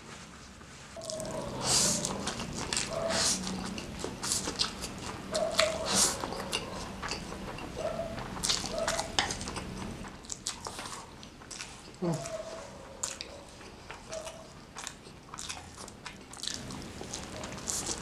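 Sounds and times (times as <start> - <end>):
slurping noodles: 1.0 - 7.4
wet chewing and smacking: 1.0 - 18.0.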